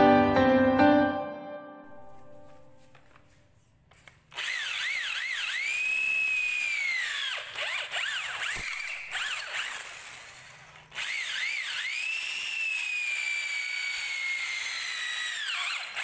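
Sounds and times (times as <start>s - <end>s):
electric drill boring into wood: 4.0s - 16.0s.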